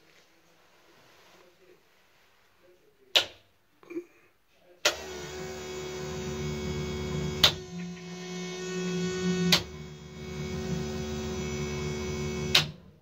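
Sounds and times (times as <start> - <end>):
fuel pumps humming: 4.9 - 13.0.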